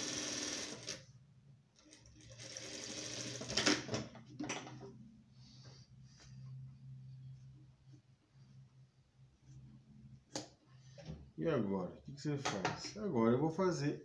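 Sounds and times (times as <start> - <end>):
sewing machine stitching: 0.0 - 1.0, 2.0 - 3.9.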